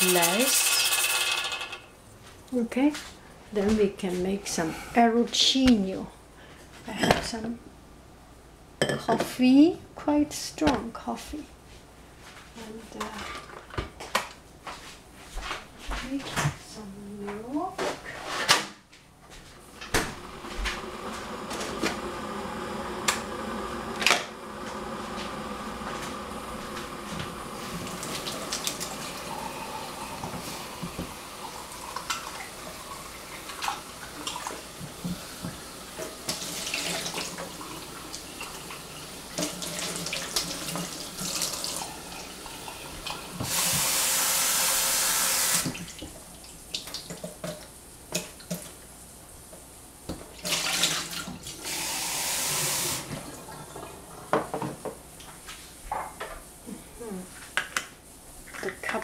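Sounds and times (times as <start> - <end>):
dishes clinking: 8.8 - 9.3
tap water running into sink: 24.0 - 47.6, 50.4 - 55.0.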